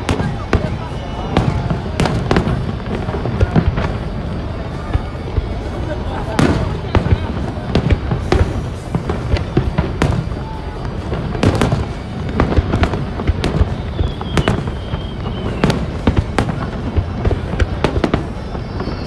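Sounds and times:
fireworks shells bursting: 0:00.0 - 0:19.0.

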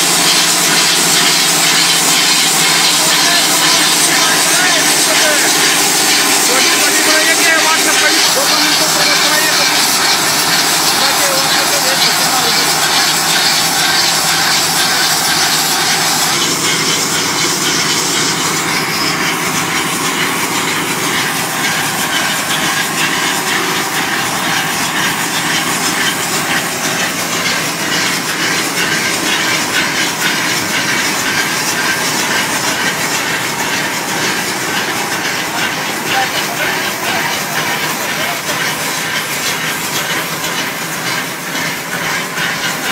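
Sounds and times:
brick-making machine clattering: 0:00.0 - 0:42.9
machine hiss: 0:00.0 - 0:42.9.

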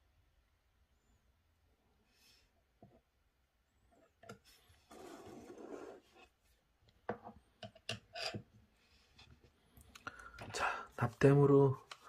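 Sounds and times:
scraping rub on wooden desk: 0:04.6 - 0:06.3.

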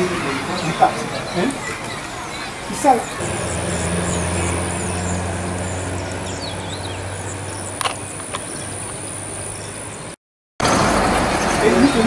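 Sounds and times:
high falling chirps: 0:03.1 - 0:08.9
vehicle engine humming: 0:03.2 - 0:10.0.

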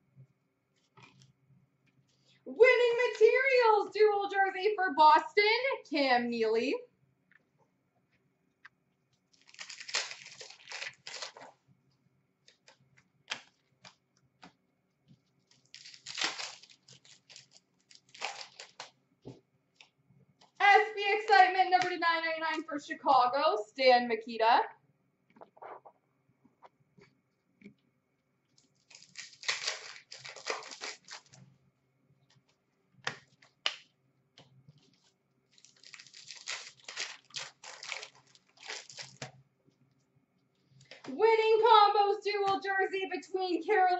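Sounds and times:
card pack wrappers tearing and crinkling: 0:09.3 - 0:11.6, 0:15.5 - 0:19.0, 0:28.6 - 0:31.4, 0:35.5 - 0:39.4.

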